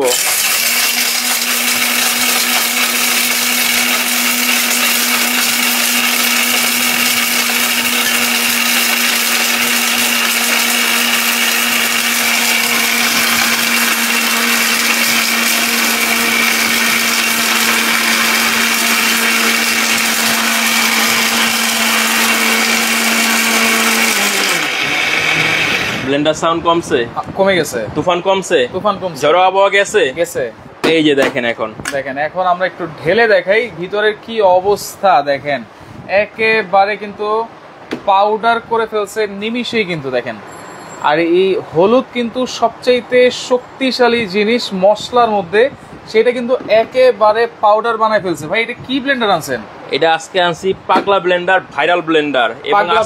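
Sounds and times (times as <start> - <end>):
mixer grinder running: 0.0 - 26.2
motor winding down: 0.0 - 26.2.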